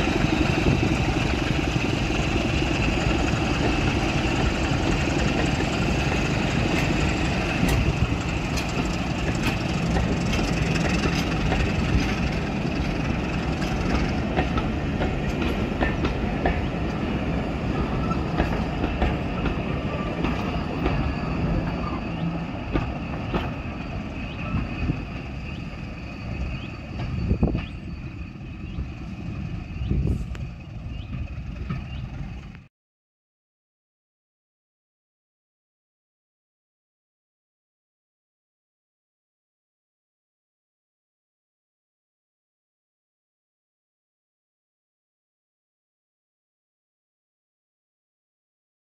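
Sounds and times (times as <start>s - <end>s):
train clanks: 0.0s - 32.7s
train rumble: 0.0s - 32.7s
train wheels clicking on rail joints: 0.0s - 32.7s.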